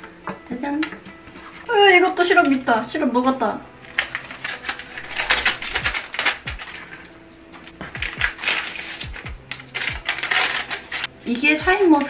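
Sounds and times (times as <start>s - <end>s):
plastic and paper crinkling: 3.8s - 11.1s.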